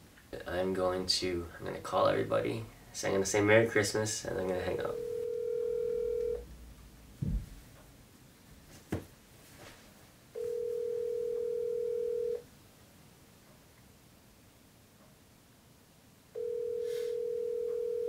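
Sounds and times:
phone ringback tone: 4.9 - 6.4, 10.4 - 12.4, 16.4 - 18.0
soft thump: 7.2 - 7.6.

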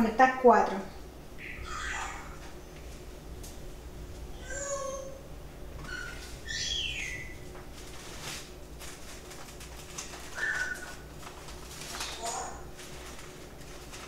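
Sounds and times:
cockatoo squawking: 1.4 - 2.6, 4.4 - 5.2, 5.8 - 7.5, 10.3 - 11.1.

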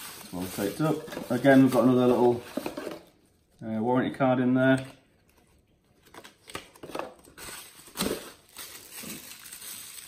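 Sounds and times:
plastic packaging crinkling: 0.0 - 3.7, 6.0 - 10.0.

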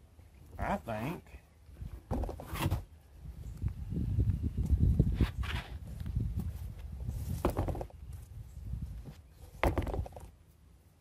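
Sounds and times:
knocks on wooden boards: 7.4 - 7.9, 9.6 - 10.3.

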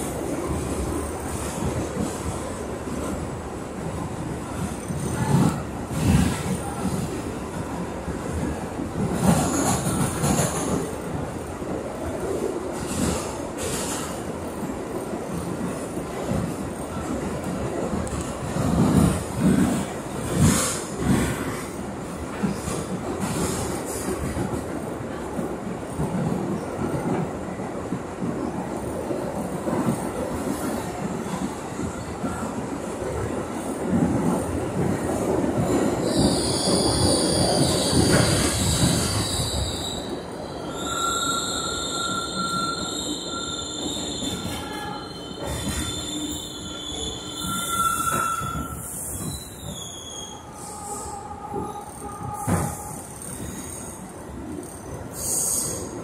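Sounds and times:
train wheels rumbling on rail: 0.0 - 56.0
wheels squealing on rails: 35.7 - 55.9.

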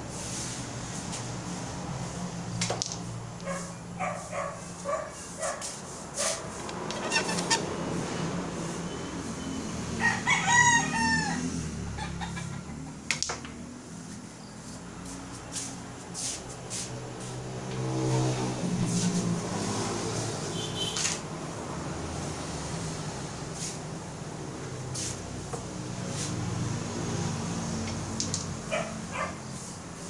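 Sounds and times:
billiard balls clicking: 2.6 - 3.5
rooster crowing: 9.8 - 12.7.

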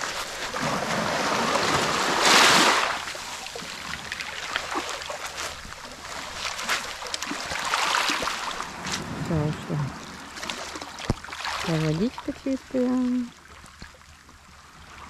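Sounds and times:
waves lapping on pebbles: 0.0 - 15.0.

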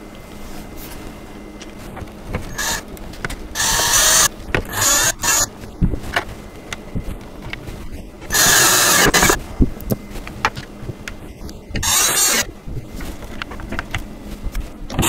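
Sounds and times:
cordless drill motor: 2.5 - 2.8, 3.5 - 5.5, 8.3 - 9.4, 11.8 - 12.5.

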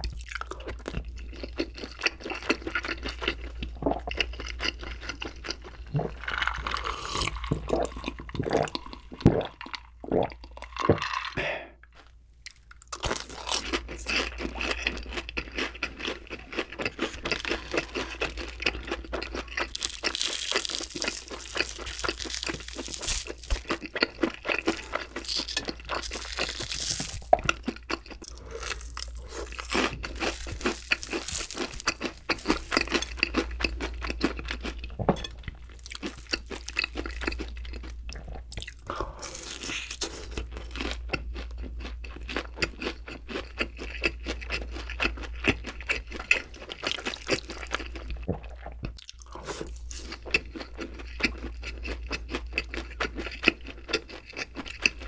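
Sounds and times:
gulping a drink: 5.9 - 11.8
crisp breading crackling: 12.5 - 34.8, 35.7 - 38.0, 38.6 - 48.1.

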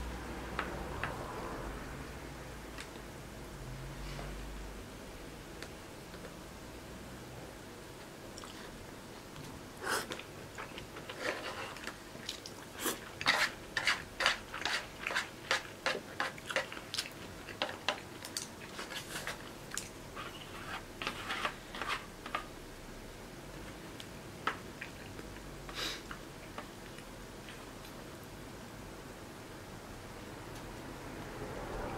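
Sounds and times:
person chewing food: 8.4 - 8.8, 9.9 - 22.4, 24.6 - 28.0.

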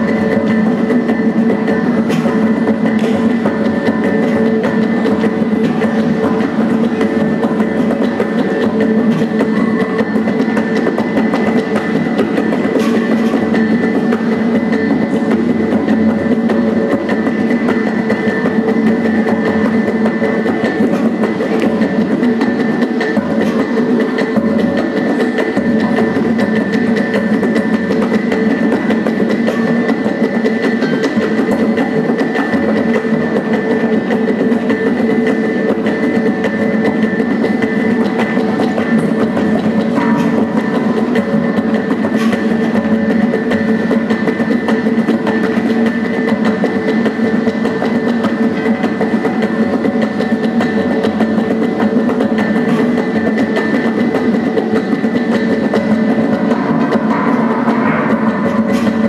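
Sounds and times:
fast drum and wood strokes: 0.0 - 59.0.

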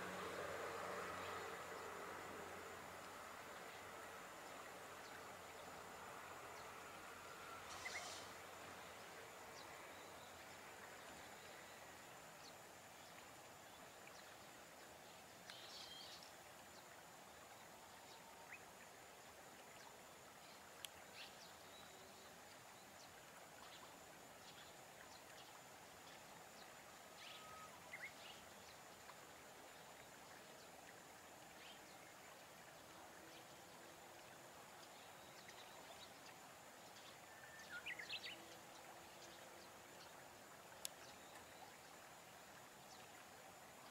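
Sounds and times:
faint field ambience: 0.0 - 43.9
bird chirps: 7.7 - 8.3.

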